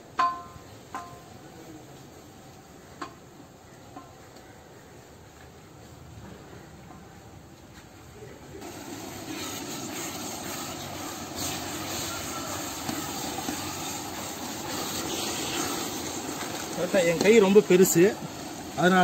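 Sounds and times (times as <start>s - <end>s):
sauce sizzling and bubbling in pot: 8.6s - 19.0s.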